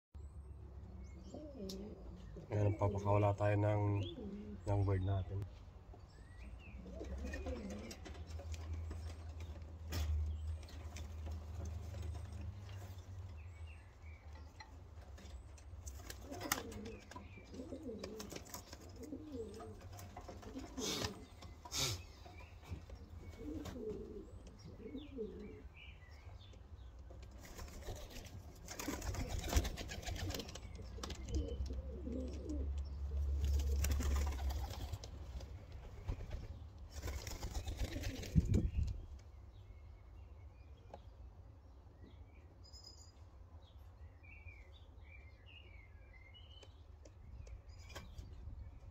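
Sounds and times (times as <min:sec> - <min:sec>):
pigeons cooing: 0:01.2 - 0:05.1, 0:06.6 - 0:13.0, 0:15.2 - 0:26.5, 0:27.4 - 0:35.3
wing flaps: 0:27.4 - 0:31.1, 0:33.4 - 0:39.0
wind rumble on microphone: 0:38.2 - 0:39.1.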